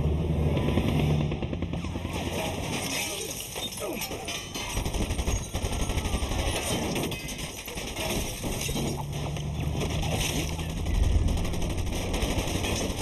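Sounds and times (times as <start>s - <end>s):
machine-gun fire: 4.6s - 13.0s
low rumble: 9.1s - 12.2s.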